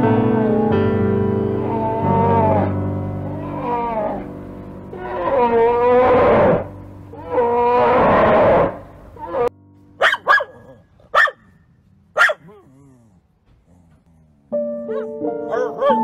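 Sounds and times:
bear cub bawling: 1.6 - 4.3, 4.9 - 16.0
dog barking: 10.0 - 13.0, 14.9 - 16.0.

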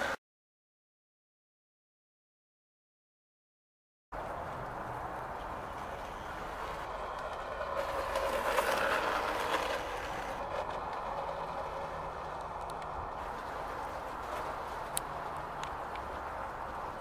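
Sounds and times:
model tram wheels rumbling on rails: 4.2 - 17.0.

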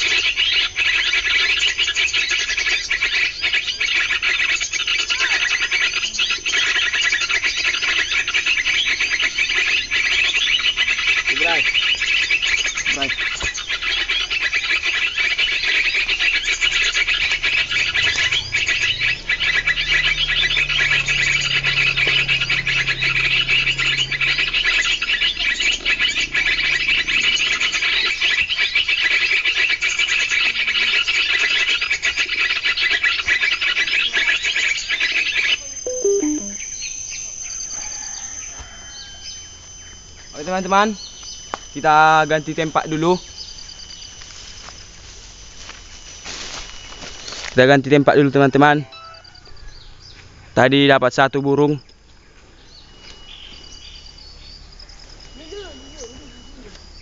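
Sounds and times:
rapid high-pitched bird chirping: 0.0 - 45.0.

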